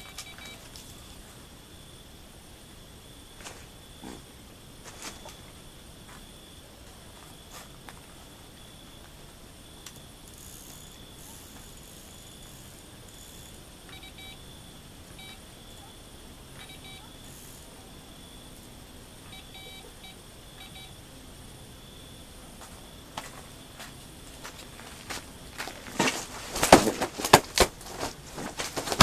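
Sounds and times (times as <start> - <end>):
bite alarm beeps: 0.0 - 0.8, 9.8 - 15.9, 16.5 - 18.6, 19.2 - 21.0
insects chirring: 0.0 - 29.0.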